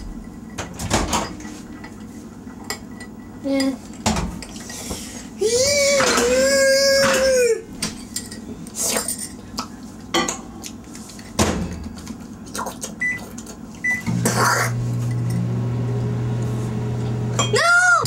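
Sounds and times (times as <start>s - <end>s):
spoons clinking on glass bowls: 7.9s - 9.4s
microwave oven humming: 13.0s - 18.0s.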